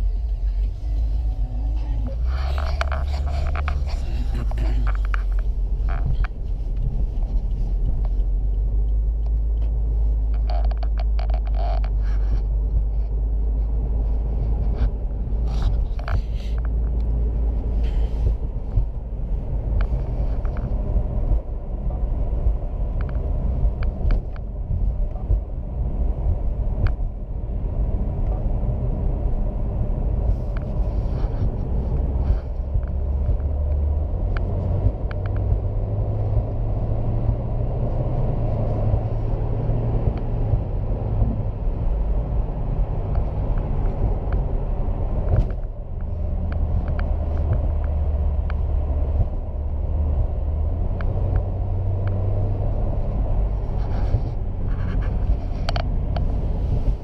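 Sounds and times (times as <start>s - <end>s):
vehicle engine rumble: 0.0s - 57.0s.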